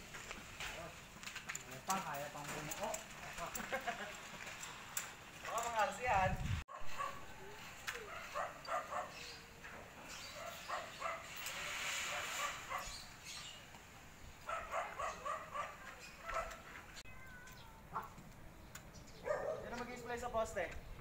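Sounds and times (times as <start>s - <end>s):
dog barking: 6.7s - 7.3s, 8.0s - 9.2s, 10.4s - 11.3s, 12.1s - 13.0s, 14.4s - 16.6s, 19.2s - 19.8s.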